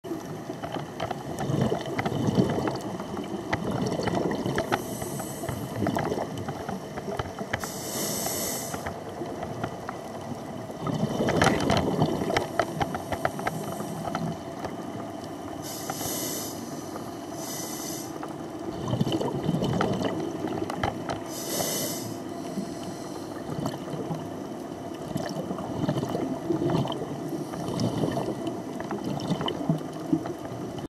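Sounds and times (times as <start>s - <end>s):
bubbly underwater exhalations: 1.2s - 6.5s, 10.7s - 14.5s, 18.7s - 22.2s, 23.4s - 24.3s, 25.0s - 30.3s
regulator hissing inhalations: 4.8s - 5.8s, 7.6s - 8.9s, 15.6s - 18.2s, 21.3s - 23.4s.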